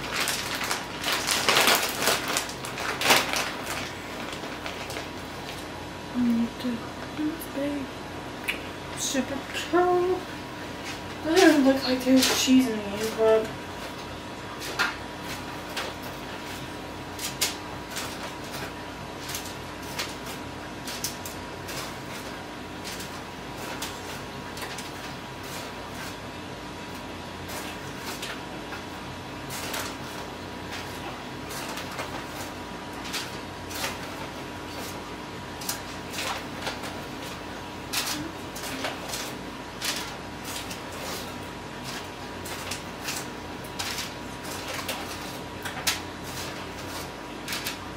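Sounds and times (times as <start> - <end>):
plastic bag crinkling: 0.0 - 5.7
steady hum: 0.0 - 47.9.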